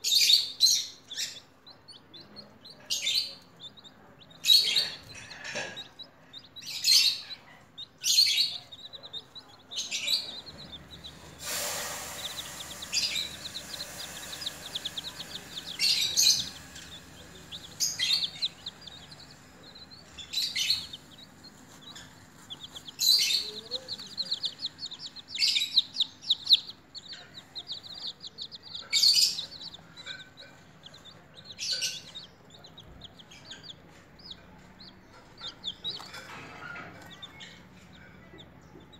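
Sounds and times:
baby chicks peeping: 0.0 - 38.9
rustling hiss: 10.2 - 27.9.

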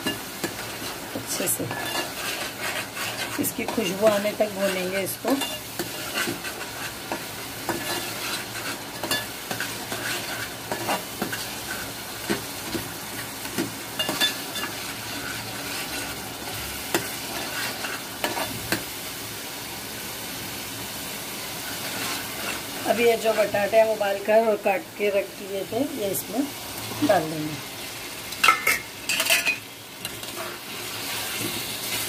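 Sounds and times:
masala sizzling in oil: 0.0 - 32.0
metal spoon scraping a pot: 1.7 - 11.9, 28.5 - 31.4.

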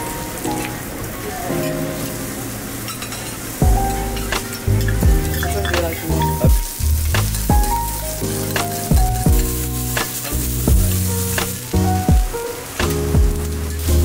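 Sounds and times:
beef sizzling on a griddle: 0.0 - 14.0
music with deep bass beat: 3.6 - 14.0.

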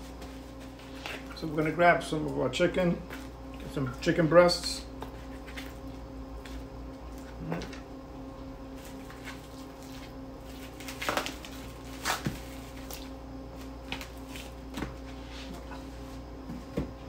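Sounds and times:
plastic wrap crinkling: 10.5 - 13.1.

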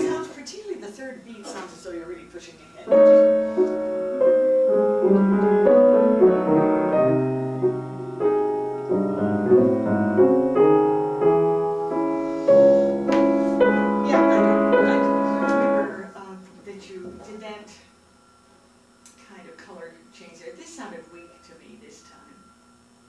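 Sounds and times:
pianos playing classical music: 0.0 - 0.3, 2.6 - 16.0.

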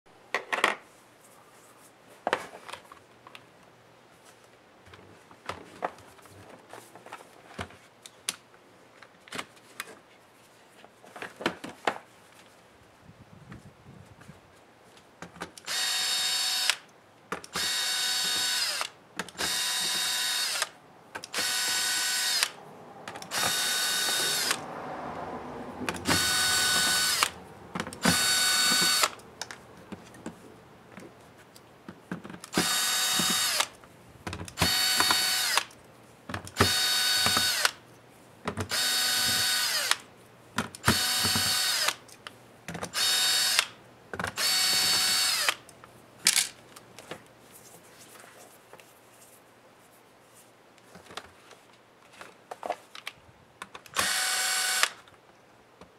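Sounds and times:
cordless drill motor whine: 15.7 - 16.8, 17.5 - 22.6, 23.2 - 24.6, 26.0 - 27.4, 28.0 - 29.2, 32.5 - 33.7, 34.6 - 35.7, 36.6 - 37.8, 38.7 - 40.0, 40.8 - 42.0, 43.0 - 43.7, 44.4 - 45.6, 54.0 - 55.0.

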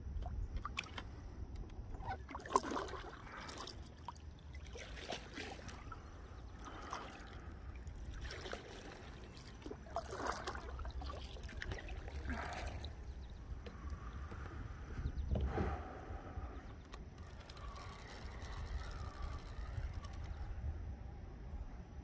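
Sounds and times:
water trickling and splashing: 1.9 - 14.1
wind rumble on microphone: 10.7 - 22.0.

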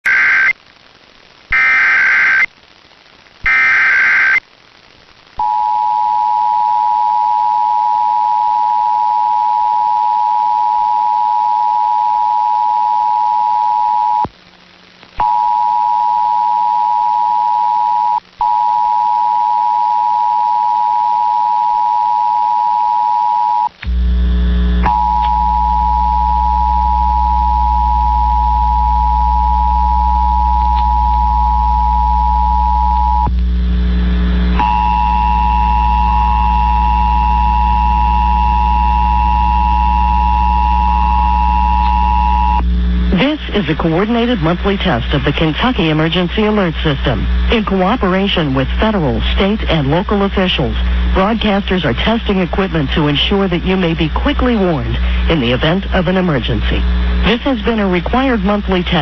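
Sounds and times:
data tone bursts: 0.0 - 0.5, 1.5 - 2.5, 3.4 - 4.4, 24.8 - 33.3, 34.6 - 47.2
low hum: 5.1 - 59.0.

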